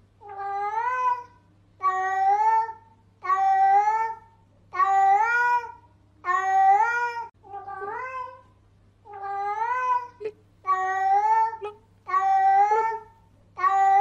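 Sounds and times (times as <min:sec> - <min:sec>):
cat meowing: 0:04.8 - 0:08.4, 0:09.1 - 0:14.0.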